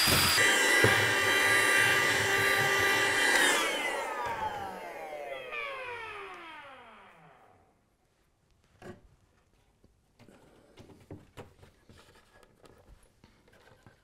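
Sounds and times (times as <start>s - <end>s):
power drill spinning down: 0.0s - 7.7s.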